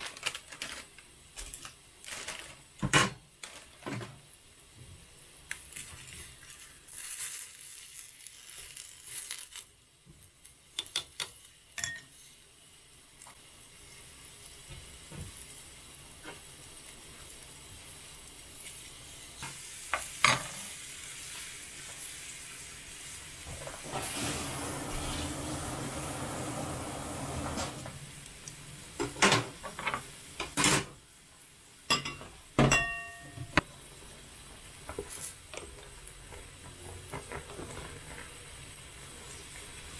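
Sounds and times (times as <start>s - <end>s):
steady hiss: 0.0s - 39.9s
utensils tapping a pot: 10.8s - 12.2s, 31.9s - 33.6s
ringing metallic clink: 31.9s - 33.5s.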